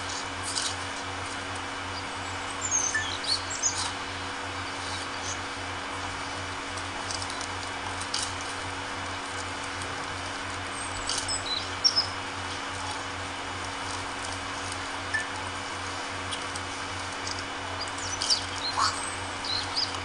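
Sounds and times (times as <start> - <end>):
low hum: 0.0 - 20.0
small clicks and rustles: 0.1 - 1.7, 6.6 - 18.7.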